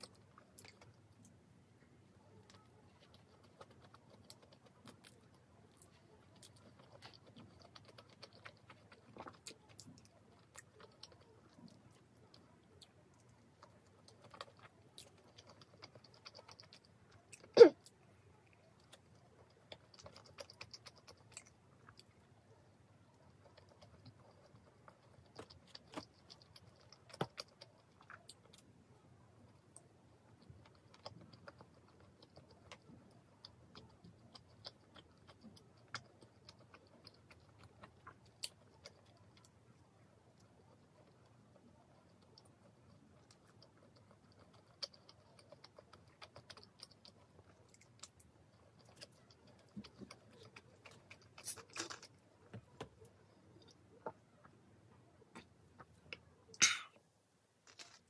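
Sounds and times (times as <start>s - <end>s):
chewing crunches: 2.3s - 28.8s, 29.6s - 54.6s, 57.6s - 58.0s.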